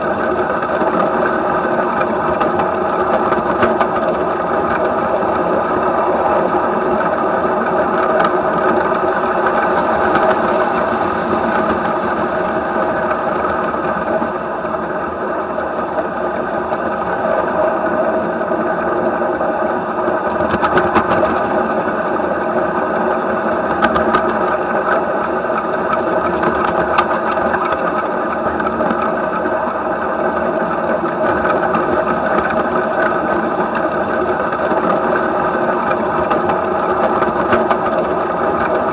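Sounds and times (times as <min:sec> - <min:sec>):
model train wheels rattling on rails: 0:00.0 - 0:38.9.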